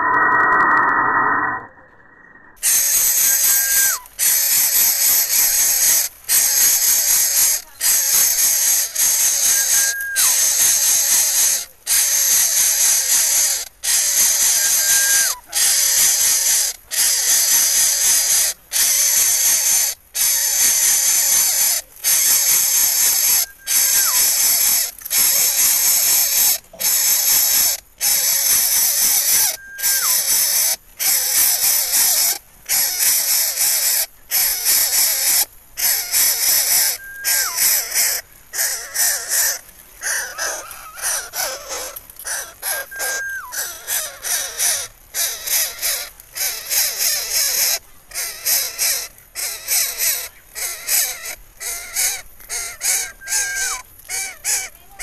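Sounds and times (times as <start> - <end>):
bird nestling hissing: 2.6 - 42.8
faint falling whistle: 3.3 - 4.0, 14.6 - 15.4, 23.5 - 24.3, 29.5 - 30.2.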